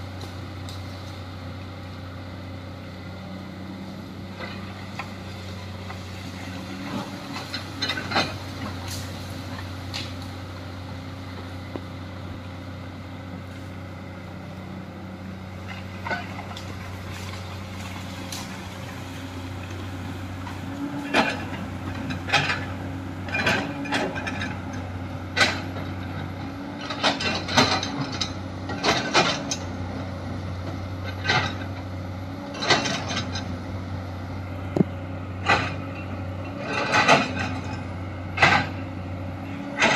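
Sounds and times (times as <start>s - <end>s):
excavator diesel engine running: 0.0s - 39.9s
excavator bucket clanking: 4.3s - 10.4s, 20.4s - 29.8s, 31.0s - 33.6s, 34.7s - 38.8s, 39.7s - 39.9s.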